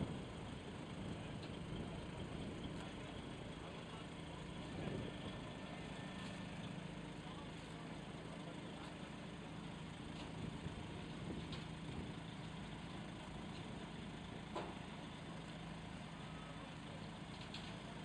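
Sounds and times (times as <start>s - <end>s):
truck diesel engine droning: 0.0s - 18.0s.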